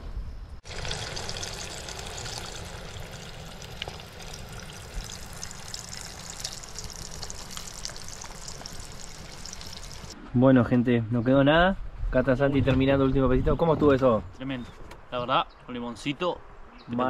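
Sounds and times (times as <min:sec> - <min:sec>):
fish deep-frying in oil: 0:00.6 - 0:10.2.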